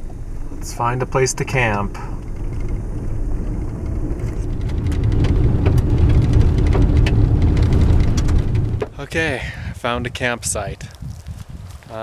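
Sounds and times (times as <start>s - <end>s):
tyres and engine rumble: 0.0s - 12.0s
stones ticking against car: 1.5s - 9.3s.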